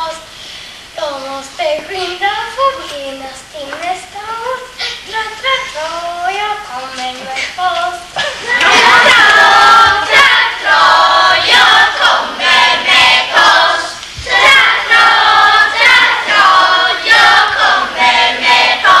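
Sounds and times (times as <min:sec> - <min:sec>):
children singing in chorus: 0:08.4 - 0:19.0.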